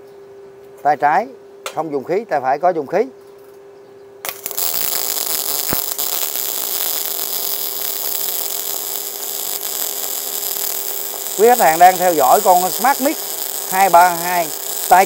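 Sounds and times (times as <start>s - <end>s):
faint steady hum: 0.0s - 15.0s
welding arc crackling sizzle: 4.2s - 15.0s.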